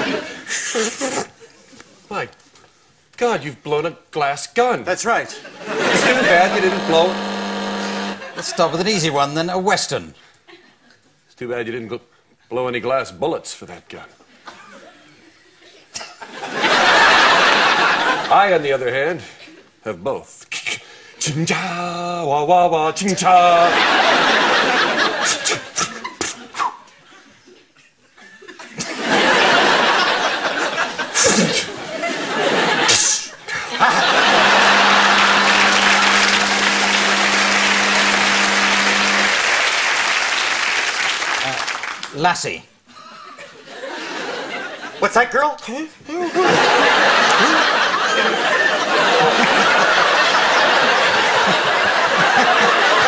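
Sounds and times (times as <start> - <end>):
studio audience laughing: 0.0 - 1.8, 5.3 - 8.8, 16.0 - 18.6, 23.2 - 26.6, 28.4 - 41.9, 42.9 - 45.0, 46.2 - 53.0.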